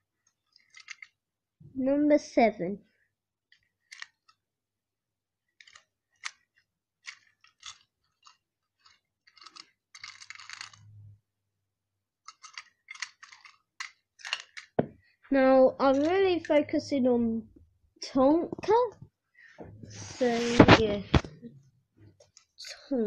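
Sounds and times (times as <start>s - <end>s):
toy train clicks and taps: 0.5s - 1.1s, 3.5s - 4.4s, 5.6s - 10.8s, 12.2s - 14.8s
rubbing rustle: 19.8s - 21.2s.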